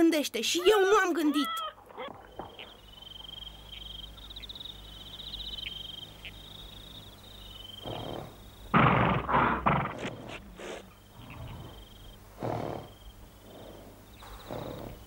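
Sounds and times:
crickets chirping: 0:00.7 - 0:15.0
horse heavy breaths and snorts: 0:07.8 - 0:08.4, 0:09.0 - 0:15.0.

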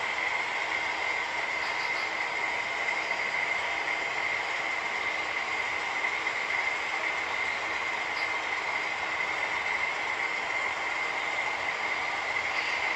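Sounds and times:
high whine: 0:00.0 - 0:12.9
model train wheels on rail: 0:00.0 - 0:12.9.

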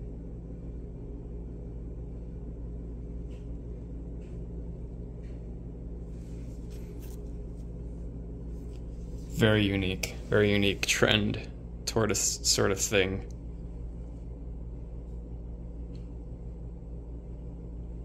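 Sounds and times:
low room hum: 0:00.0 - 0:18.0.

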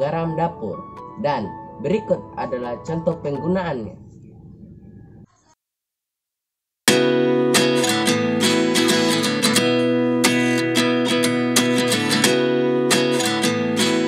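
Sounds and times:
acoustic guitar strumming chords: 0:06.9 - 0:14.0.

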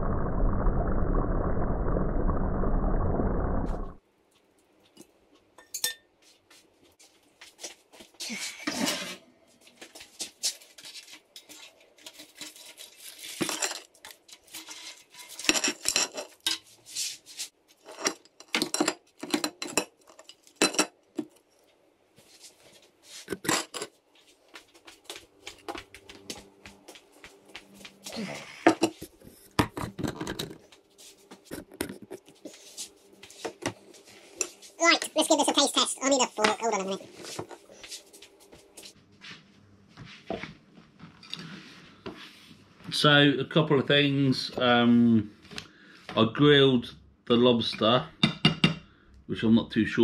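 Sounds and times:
kitchenware clattering: 0:05.6 - 0:06.1, 0:14.6 - 0:16.7, 0:17.8 - 0:21.0, 0:23.3 - 0:24.0.

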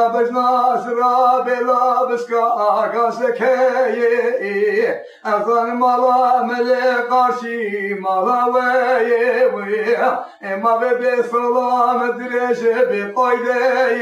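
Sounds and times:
man singing unaccompanied: 0:00.0 - 0:14.0
singer breathing: 0:05.0 - 0:05.3, 0:10.1 - 0:10.5.

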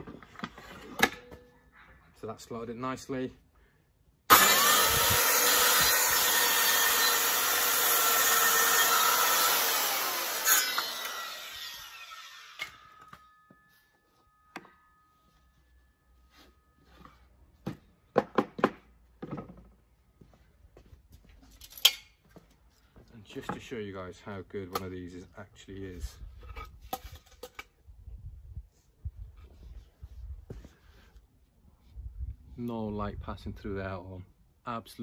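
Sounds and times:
circular saw cutting wood: 0:04.3 - 0:13.2
saw blade spinning down: 0:04.3 - 0:13.3.

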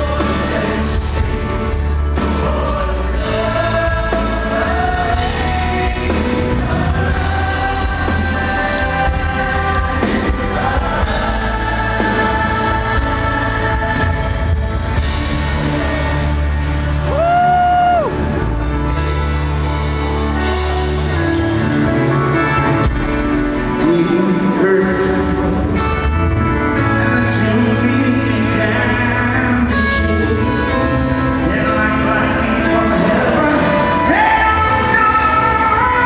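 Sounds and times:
men singing: 0:00.0 - 0:18.1, 0:26.7 - 0:36.0
pop rock band playing: 0:00.0 - 0:36.0.

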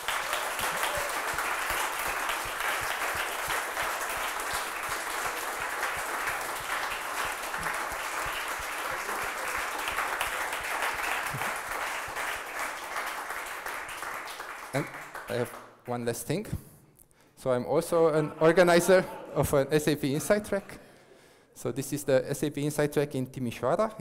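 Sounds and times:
audience applauding: 0:00.0 - 0:15.7.

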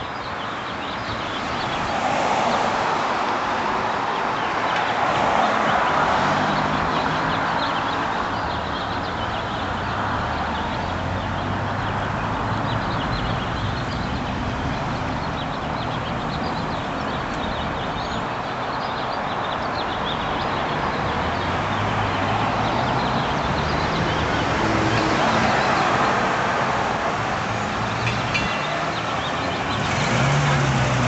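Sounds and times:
car engines passing: 0:00.0 - 0:31.0
small birds chirping: 0:05.8 - 0:26.2.

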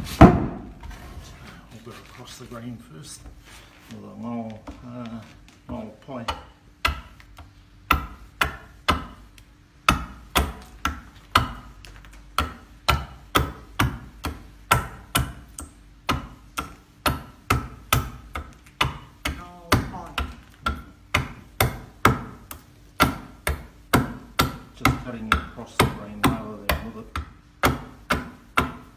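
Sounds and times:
stone adze chopping wood: 0:06.2 - 0:28.9.

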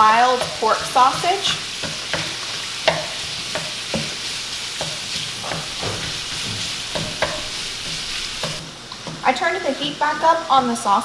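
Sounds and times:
wooden spoon scraping pan: 0:00.0 - 0:09.2
sausage sizzling in a skillet: 0:00.0 - 0:11.0.

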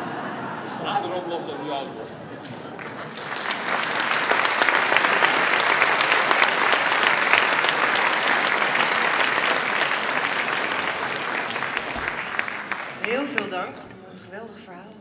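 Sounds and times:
audience applauding: 0:02.7 - 0:13.9.

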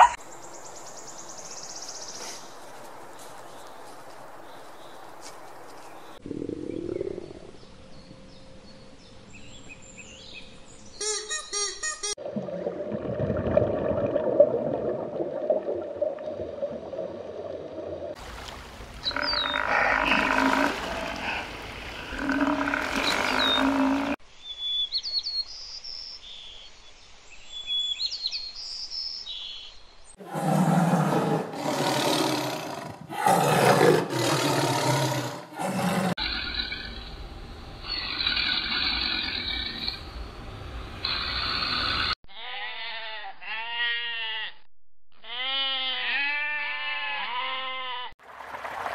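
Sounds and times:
water buffaloes calling: 0:19.0 - 0:24.2
tiger roars: 0:30.2 - 0:36.8.

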